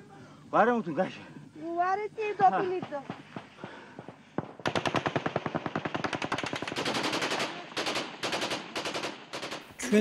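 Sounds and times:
rapid automatic gunfire: 4.4s - 9.7s.

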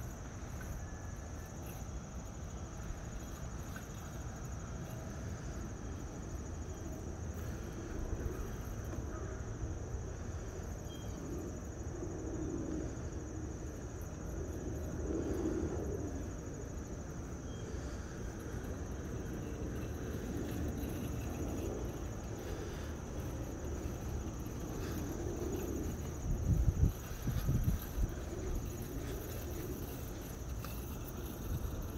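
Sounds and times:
high-pitched insect trill: 0.0s - 31.9s
robotic mower whirring: 17.0s - 31.9s
low bumps: 17.7s - 31.9s.

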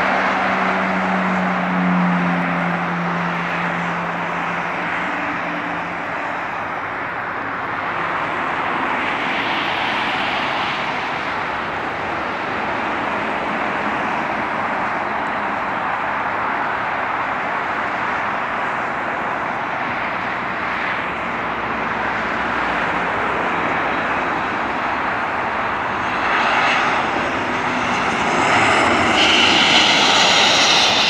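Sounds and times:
truck engine hum: 0.0s - 9.0s, 11.2s - 31.0s
highway traffic: 0.0s - 31.0s
jet engines: 0.0s - 31.0s
vehicle passing: 21.1s - 31.0s.

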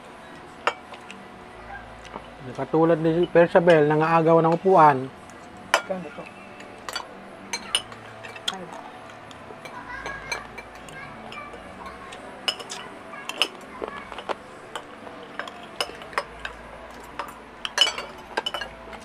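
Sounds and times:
faint voices: 0.0s - 19.0s
cutlery clinking on plates: 5.7s - 8.8s, 9.6s - 19.0s.

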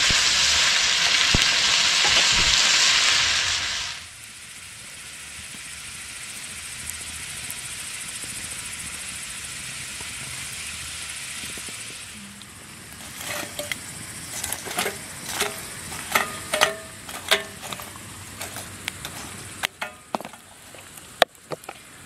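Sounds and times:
steady high hiss: 0.0s - 22.0s
log knocking among coals: 13.0s - 21.9s.

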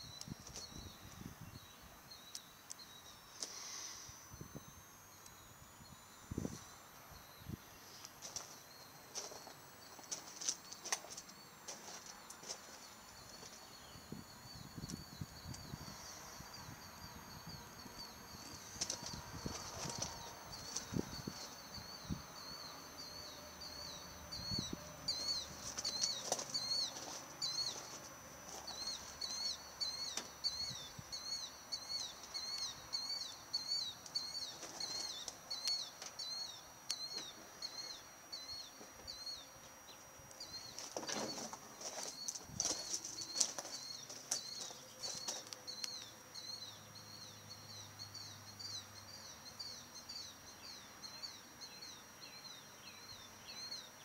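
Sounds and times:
thin high whine: 0.0s - 54.0s
clicks and rustles: 40.7s - 46.1s.

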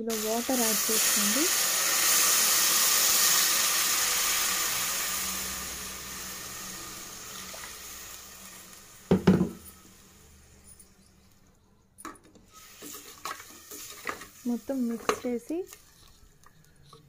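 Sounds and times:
water pouring into pot: 0.1s - 11.0s.

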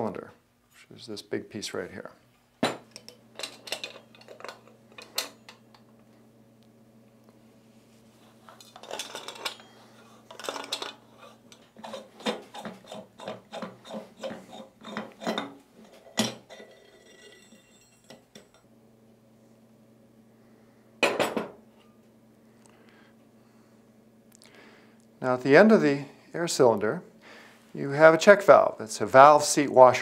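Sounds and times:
metal clinks and scrapes: 8.5s - 18.6s.

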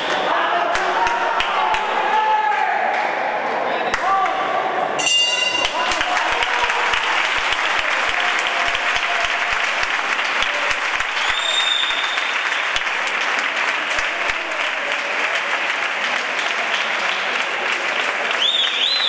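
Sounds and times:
spectators applauding: 0.0s - 3.2s, 5.5s - 19.0s
short high whistle: 11.2s - 12.4s.

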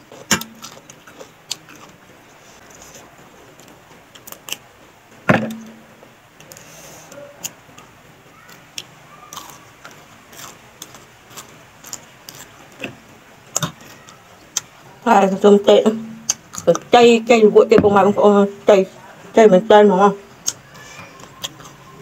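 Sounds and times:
loud thump: 5.3s - 5.8s, 17.7s - 18.2s.

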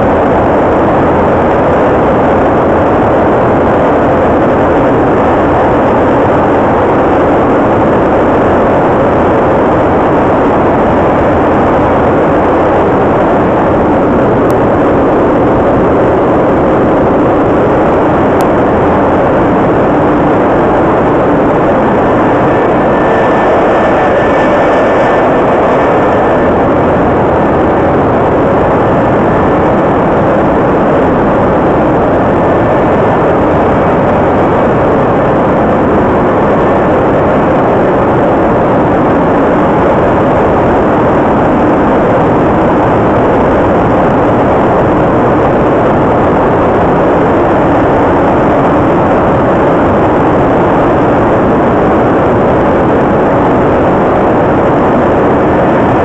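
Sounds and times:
gas turbine running: 0.0s - 50.8s, 51.4s - 56.0s.

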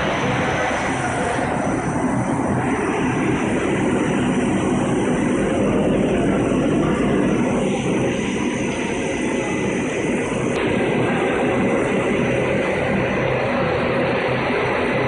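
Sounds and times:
low hum: 0.0s - 15.0s
machinery drone: 0.0s - 15.0s.

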